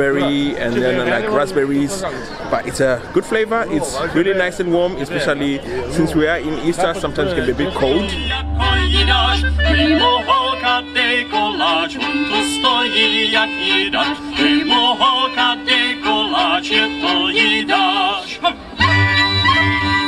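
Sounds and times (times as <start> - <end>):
fiddles playing: 7.4 - 20.0
held low drone note: 7.6 - 12.3
woman singing: 8.1 - 18.5.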